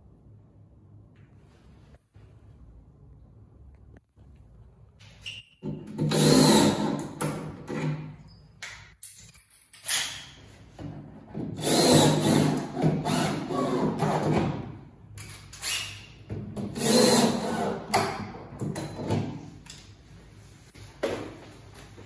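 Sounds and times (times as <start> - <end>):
power drill driving screws: 6.0 - 7.0, 11.6 - 14.3, 16.7 - 17.8.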